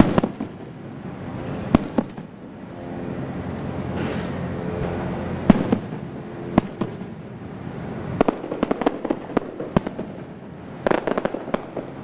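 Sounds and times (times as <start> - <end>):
crackling firework reports: 0.0 - 12.0
firework shells bursting: 3.8 - 12.0.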